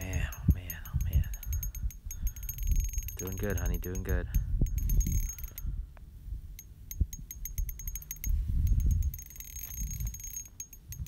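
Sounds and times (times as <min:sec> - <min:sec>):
fishing reel drag clicking: 0:06.9 - 0:11.0.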